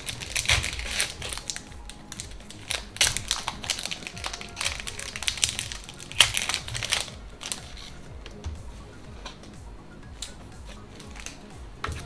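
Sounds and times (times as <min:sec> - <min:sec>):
foil wrapper crinkling: 0:00.0 - 0:08.1, 0:11.0 - 0:11.4
trading cards rustling: 0:00.0 - 0:12.0.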